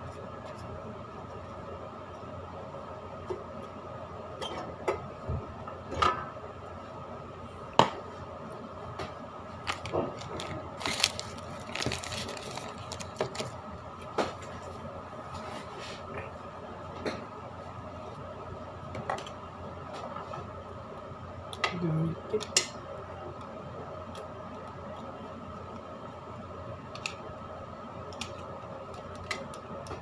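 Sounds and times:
faint hum: 0.0 - 30.0
wrapper rustling: 9.6 - 13.6.

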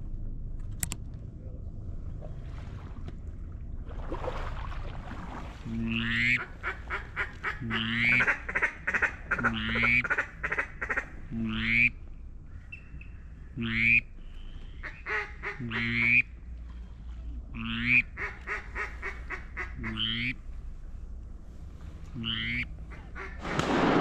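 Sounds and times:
low steady hiss: 0.0 - 24.0
duck quacking: 5.8 - 12.0, 13.6 - 14.0, 14.8 - 16.3, 17.6 - 20.4, 22.2 - 23.4.

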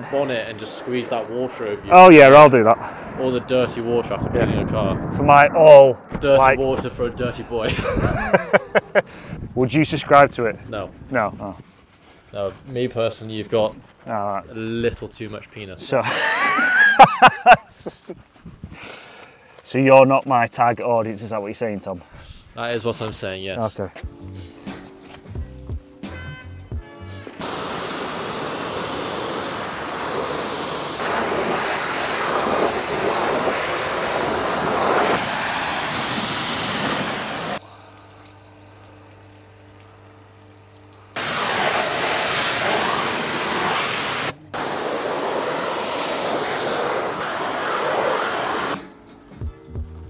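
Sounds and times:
water spraying hiss: 27.4 - 39.4, 40.4 - 48.8.

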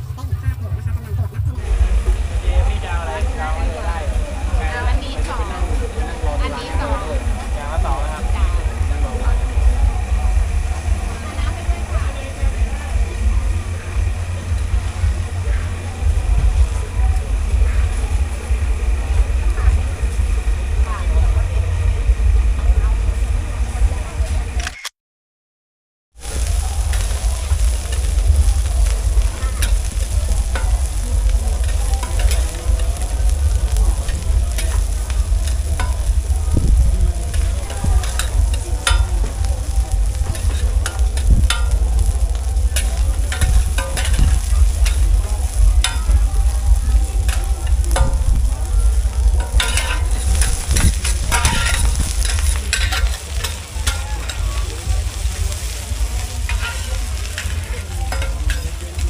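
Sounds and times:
steady low rumble: 0.0 - 24.6, 26.2 - 59.0
food sizzling in a pan: 1.6 - 23.6, 26.2 - 59.0
utensil scraping a pan: 40.0 - 46.2, 47.2 - 54.4, 55.6 - 58.8.

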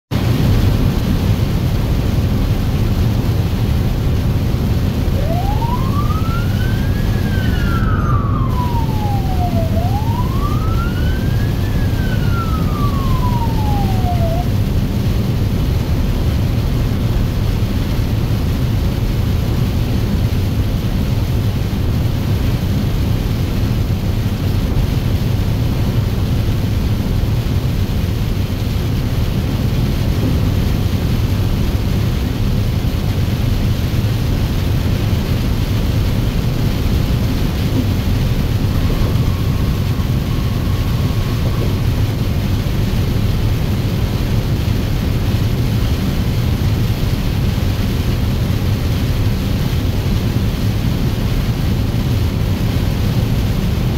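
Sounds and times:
vehicle engine rumble: 0.1 - 53.9
tyres on wet road: 0.2 - 53.9
siren wailing: 4.8 - 15.0, 36.4 - 44.2.

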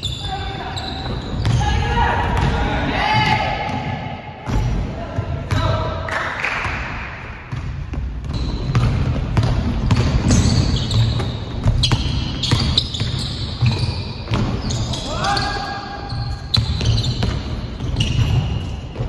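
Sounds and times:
sneakers squeaking on wood: 0.0 - 2.6, 8.2 - 19.0
basketball bouncing on wood floor: 1.0 - 1.6, 7.5 - 14.8, 16.1 - 19.0.

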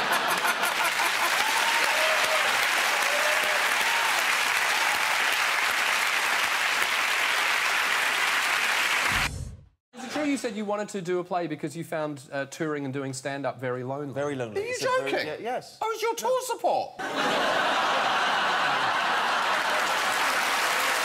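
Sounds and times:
audience applauding: 0.0 - 9.3, 17.4 - 21.0.

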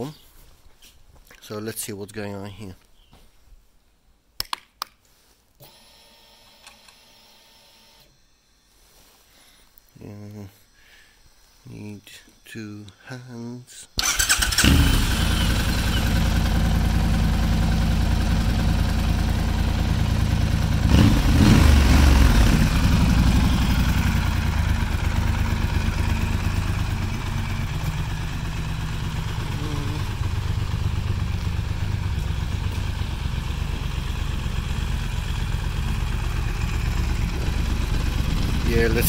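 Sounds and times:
motorcycle engine starting and idling: 14.0 - 39.0
engine throttle blip: 20.9 - 39.0.

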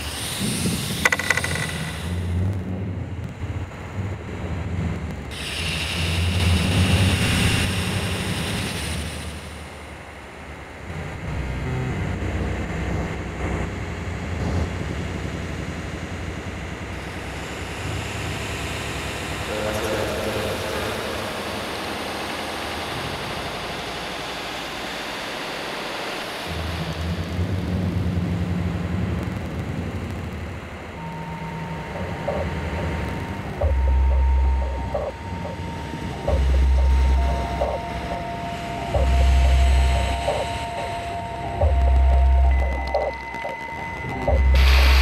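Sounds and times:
low rumble: 26.5 - 45.0.

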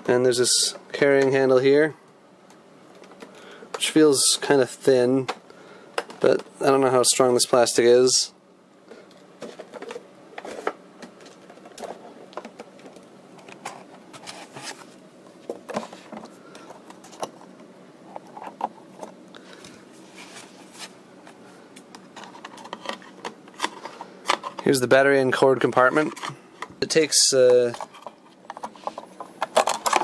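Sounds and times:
fingers handling plastic radio case: 20.8 - 24.7.

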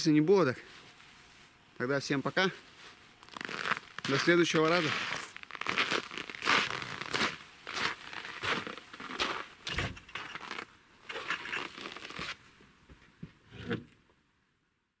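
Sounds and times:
footsteps crunching in snow: 2.5 - 12.5.

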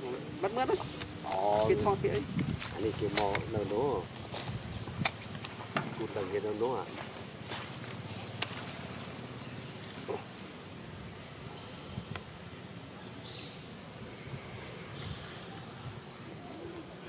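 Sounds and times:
faint hiss: 7.8 - 9.2, 9.9 - 16.9.

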